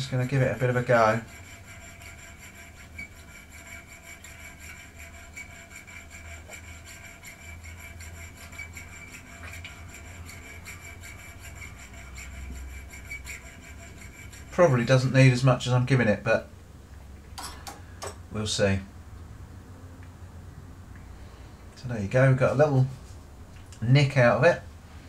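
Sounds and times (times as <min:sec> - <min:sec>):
file rasping on steel blade: 0:00.0 - 0:15.7.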